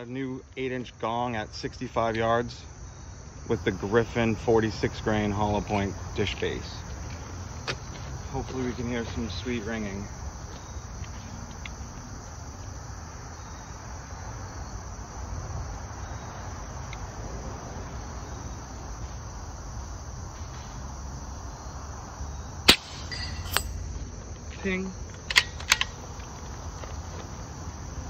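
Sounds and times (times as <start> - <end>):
insects chirping: 0.0 - 28.0
air rifle shot: 22.7 - 23.9.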